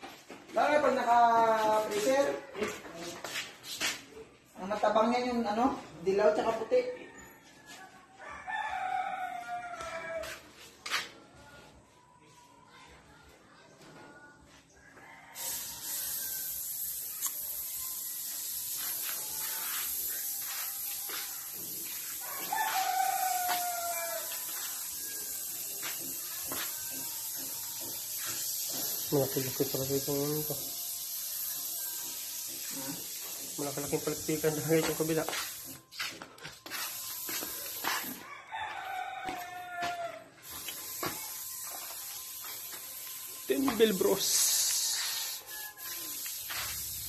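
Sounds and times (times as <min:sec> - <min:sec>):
rooster crowing: 0:06.8 - 0:10.5, 0:14.9 - 0:16.7, 0:21.8 - 0:25.9, 0:37.6 - 0:42.0, 0:44.6 - 0:46.6
steady high hiss: 0:15.4 - 0:35.8, 0:40.4 - 0:47.0.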